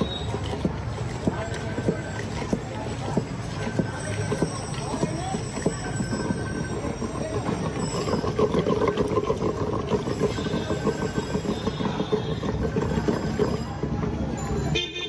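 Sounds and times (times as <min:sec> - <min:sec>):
churning stick knocking and sloshing: 0:00.0 - 0:14.5.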